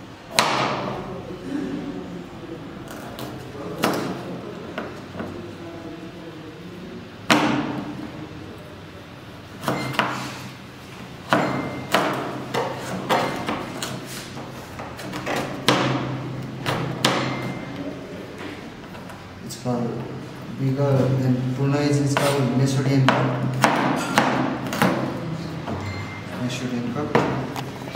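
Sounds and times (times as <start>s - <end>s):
knife chopping on plastic board: 0.3s - 0.8s, 11.3s - 14.0s, 14.8s - 17.4s, 23.0s - 25.1s.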